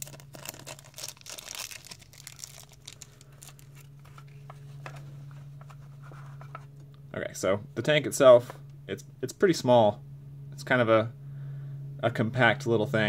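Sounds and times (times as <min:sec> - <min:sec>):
plastic bag crinkling: 0:00.0 - 0:04.8.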